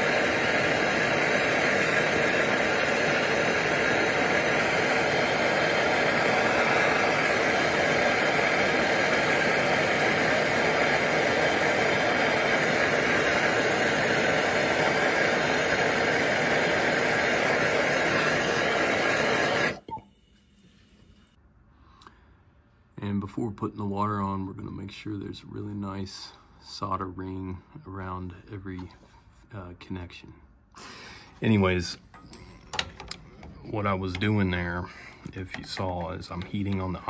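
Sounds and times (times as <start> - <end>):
gas torch flame hissing: 0.0 - 21.4, 30.8 - 37.0.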